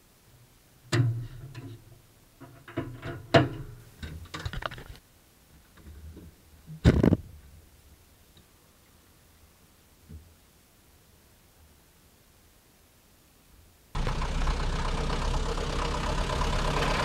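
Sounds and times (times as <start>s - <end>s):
metal car body clunks and rattles: 0.9s - 1.8s, 2.4s - 4.9s.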